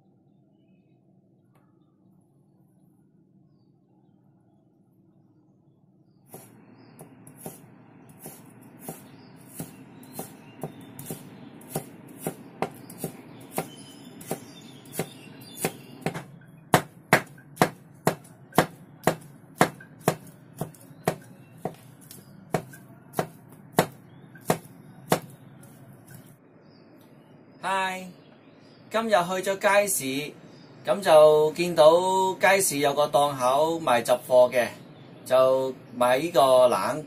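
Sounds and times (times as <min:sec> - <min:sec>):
cleaver chopping on wooden board: 0:06.3 - 0:07.6, 0:08.2 - 0:25.4.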